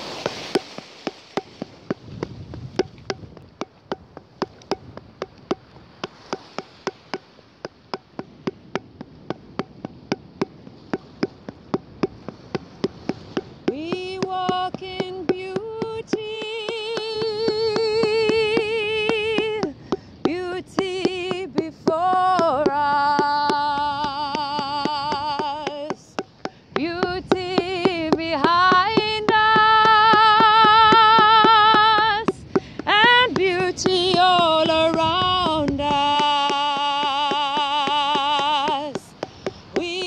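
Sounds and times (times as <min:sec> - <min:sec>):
steady sharp taps: 0:00.1 - 0:40.0
woman singing long notes: 0:13.6 - 0:40.0.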